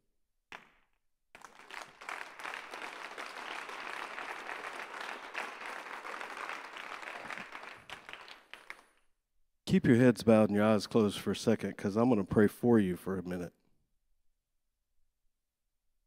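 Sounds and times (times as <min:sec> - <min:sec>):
crowd applauding: 0:01.4 - 0:09.0.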